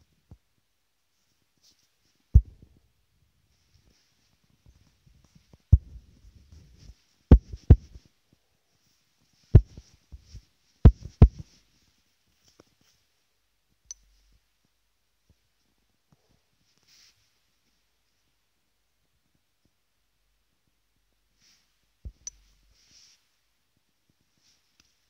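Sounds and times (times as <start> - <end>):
fingertip taps on touchscreen: 9.6 - 9.8, 10.9 - 11.4
small click: 13.9 - 14.1.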